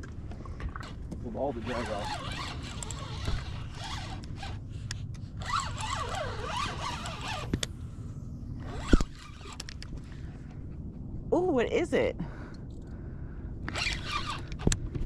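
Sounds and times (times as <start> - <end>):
fishing reel drag buzzing: 1.5 - 7.7, 8.6 - 9.8, 13.7 - 14.7.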